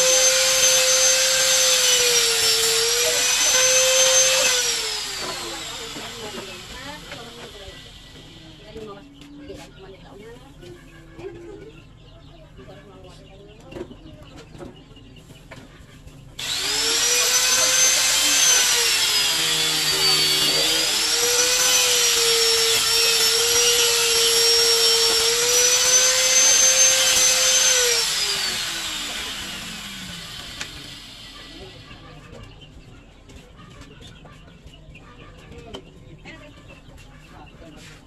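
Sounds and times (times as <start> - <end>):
electric drill whining: 0.0 - 8.7, 16.4 - 32.0.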